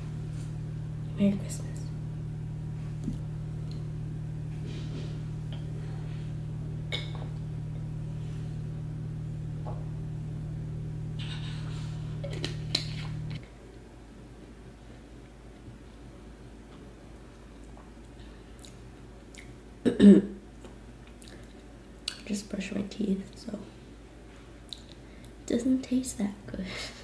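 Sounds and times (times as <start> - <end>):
low motor hum: 0.0 - 13.6.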